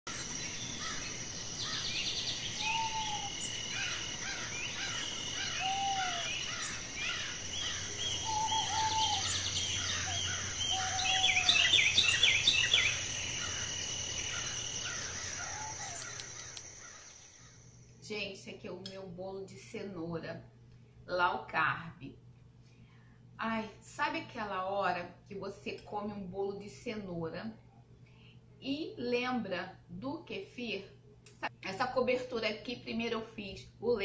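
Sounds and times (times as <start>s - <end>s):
birds singing and calling: 0.1s - 17.7s
high-pitched insect drone: 0.1s - 17.8s.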